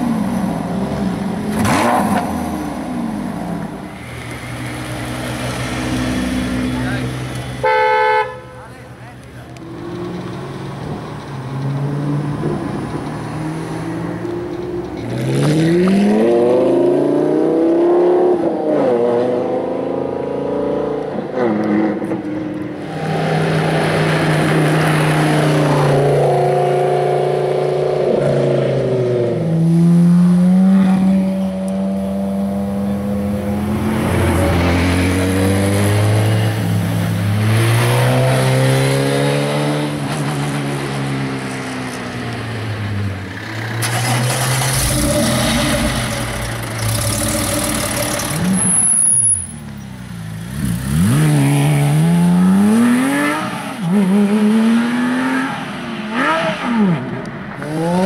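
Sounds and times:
race car engines accelerating: 8.7 - 58.0
gear changes: 43.4 - 49.6.

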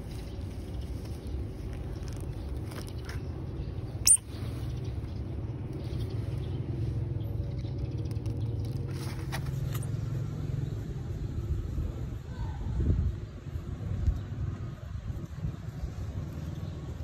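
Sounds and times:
baby otter squeak: 4.0 - 4.3.

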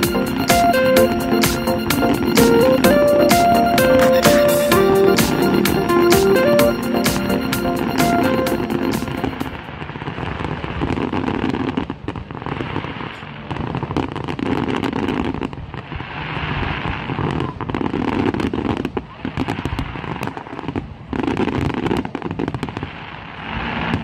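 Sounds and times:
fireworks crackling and popping: 9.0 - 24.0.

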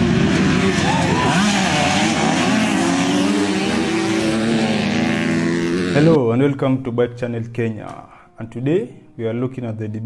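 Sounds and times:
dirt bike engines revving: 0.0 - 6.2.

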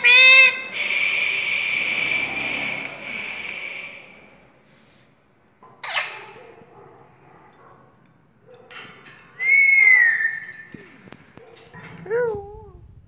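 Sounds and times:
parakeet squawk: 0.0 - 3.4, 5.8 - 6.2.

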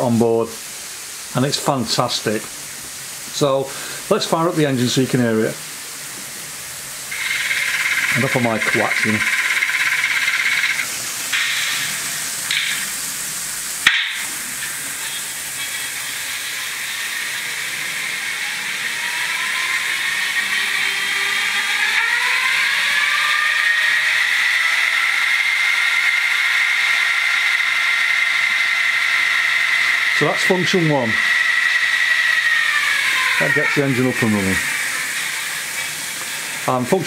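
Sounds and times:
hissing background: 0.0 - 21.6, 33.2 - 37.0
whining electric hum: 0.0 - 37.0
sharp click: 10.5 - 12.9, 13.8 - 14.3.

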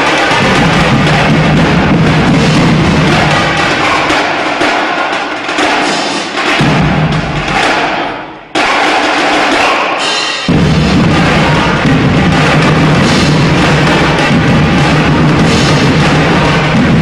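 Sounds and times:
driving bass drum pattern: 0.0 - 4.7, 10.5 - 17.0
drum-heavy music: 0.0 - 17.0.

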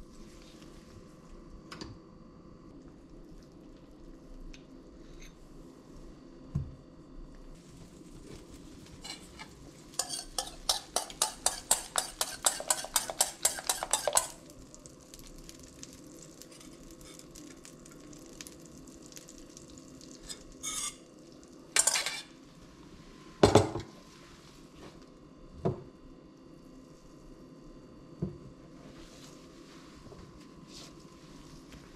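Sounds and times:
frying pan sizzle: 7.6 - 22.5
whisk clinking in metal bowl: 10.0 - 14.4
metal bowl clunking: 21.8 - 22.3.

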